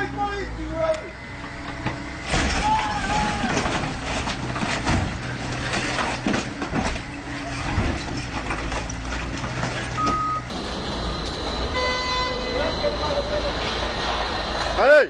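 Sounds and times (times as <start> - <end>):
excavator engine running: 0.0 - 15.0
metal cracking and crunching: 2.3 - 10.0
short beeps: 10.0 - 10.5.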